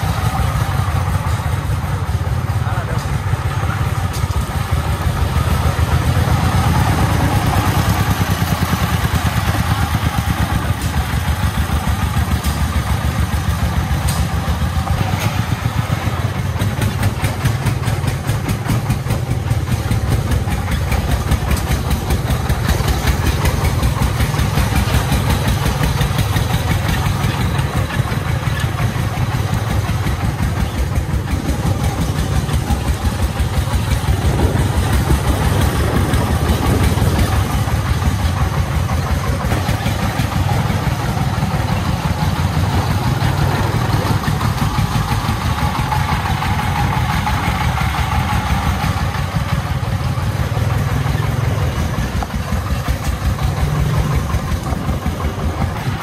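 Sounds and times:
diesel engine chugging: 0.0s - 56.0s.

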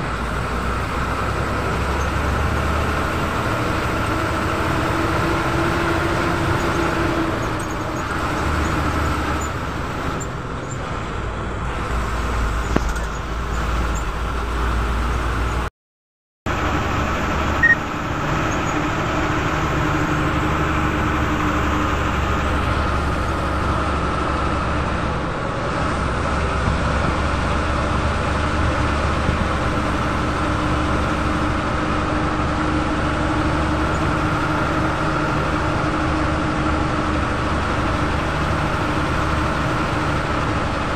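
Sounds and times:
bus engine drone: 0.0s - 15.7s, 16.5s - 40.9s
road noise: 0.0s - 15.7s, 16.5s - 40.9s.

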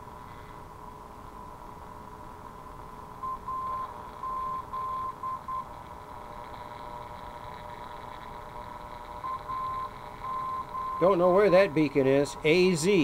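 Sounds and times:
radio receiver hiss: 3.8s - 13.0s
morse code whistle tone: 9.2s - 11.2s.

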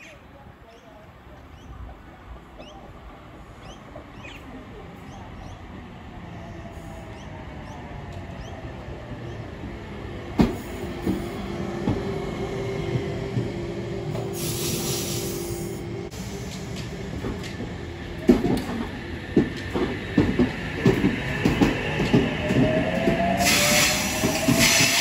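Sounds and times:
electric train slowing to a stop: 2.5s - 25.0s
hiss: 14.3s - 16.7s.

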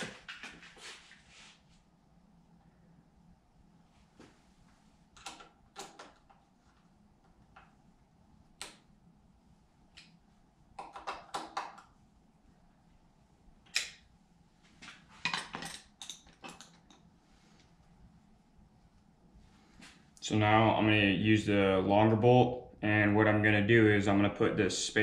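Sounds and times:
metal brackets and bolts clicking: 15.2s - 17.0s.

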